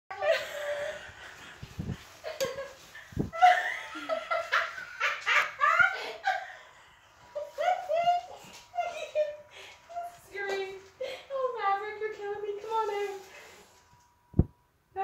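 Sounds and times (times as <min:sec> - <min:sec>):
people laughing and giggling: 0:00.1 - 0:10.1.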